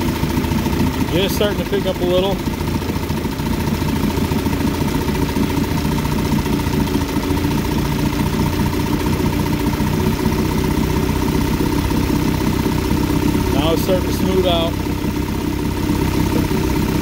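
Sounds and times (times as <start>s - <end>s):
outboard motor idling: 0.0s - 17.0s.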